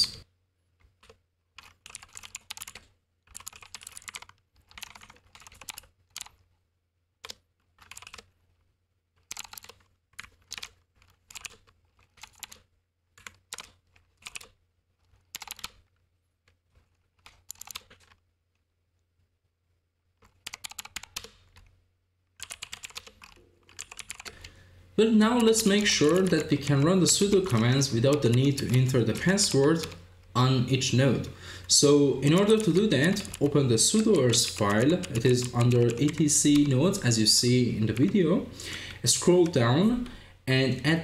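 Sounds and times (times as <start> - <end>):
typing on computer keyboard: 1.0 - 6.4, 7.2 - 8.3, 9.2 - 15.9, 16.7 - 18.2, 20.2 - 21.7, 22.4 - 24.5, 25.3 - 30.0, 32.2 - 36.8.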